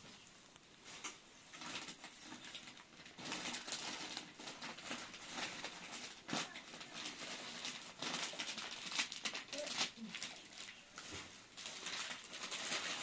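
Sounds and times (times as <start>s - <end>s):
plastic wrappers crinkling: 0.0s - 13.0s.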